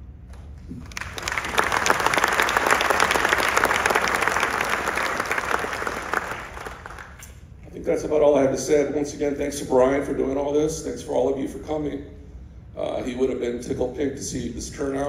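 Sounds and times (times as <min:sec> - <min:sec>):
audience applauding: 0:00.7 - 0:07.3.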